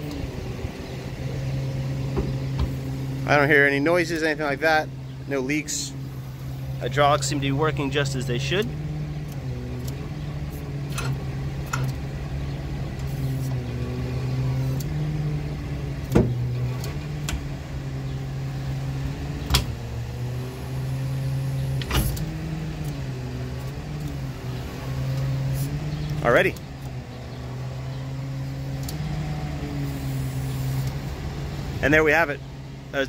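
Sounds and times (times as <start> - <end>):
hydraulic pump drone: 0.0 - 33.0
sharp metallic clunks: 2.1 - 2.8, 16.0 - 17.5.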